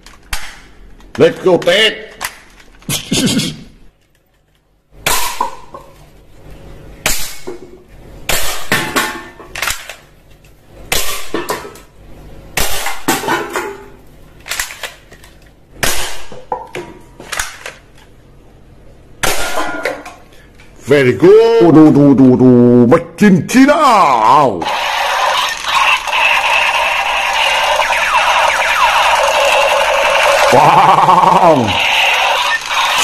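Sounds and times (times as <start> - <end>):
toy guns firing: 24.6 - 33.0.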